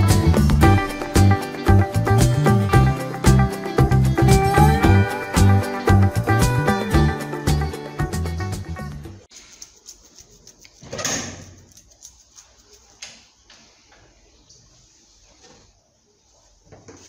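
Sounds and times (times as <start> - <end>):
upbeat background music: 0.0 - 9.3.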